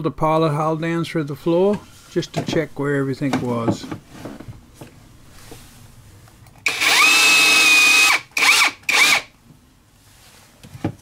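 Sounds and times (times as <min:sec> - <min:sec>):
cordless drill boring: 0:06.6 - 0:09.3.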